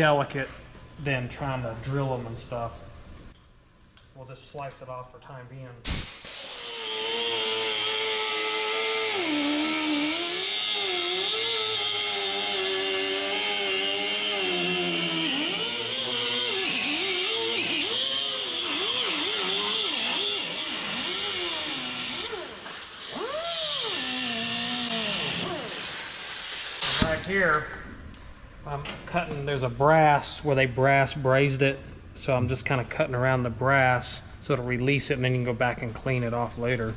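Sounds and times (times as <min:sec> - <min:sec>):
air hiss: 0:05.8 - 0:06.9, 0:25.3 - 0:27.3
pneumatic cutoff wheel whining: 0:05.9 - 0:27.2.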